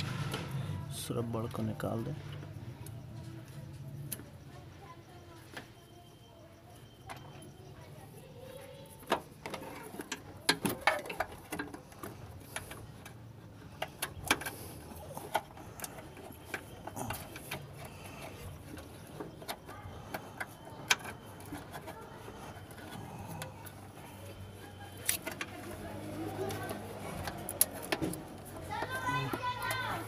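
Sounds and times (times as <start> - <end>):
hands working in engine bay: 8.9 - 30.0.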